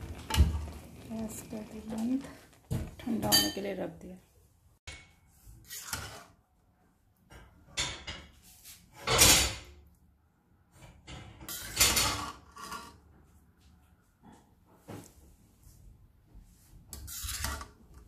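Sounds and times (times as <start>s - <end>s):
spatula scraping an iron pan: 5.5s - 6.4s, 11.1s - 13.1s, 16.9s - 18.0s.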